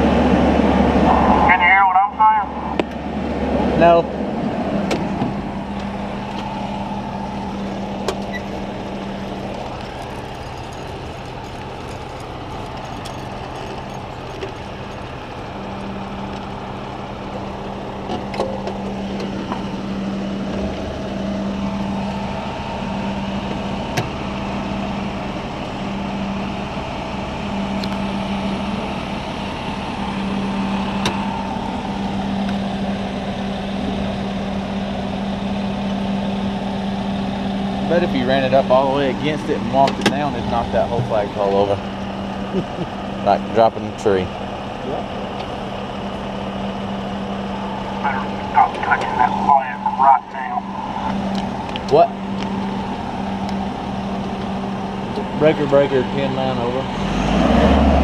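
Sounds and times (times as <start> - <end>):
hydraulics humming: 0.0 - 58.0
deep low rumble: 44.8 - 55.5.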